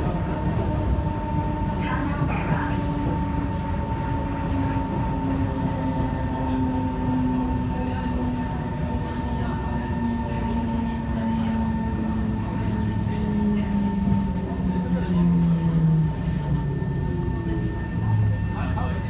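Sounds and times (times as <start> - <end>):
train wheels rumbling: 0.0 - 19.0.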